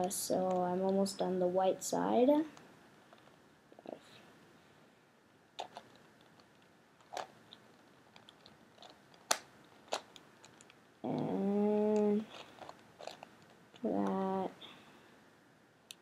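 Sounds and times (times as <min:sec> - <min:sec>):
plastic puzzle clicks: 0:05.6 - 0:11.3, 0:11.9 - 0:14.2
person humming: 0:11.0 - 0:12.3.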